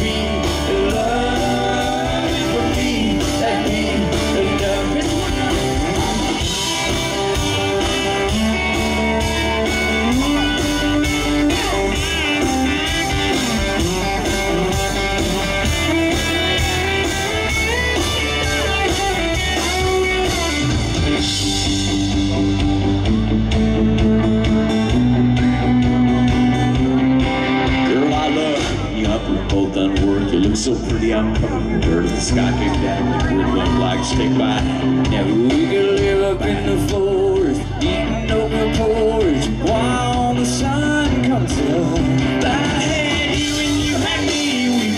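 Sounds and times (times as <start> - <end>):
country band playing: 0.0 - 44.9
electric guitar lead with bent notes: 0.0 - 44.9.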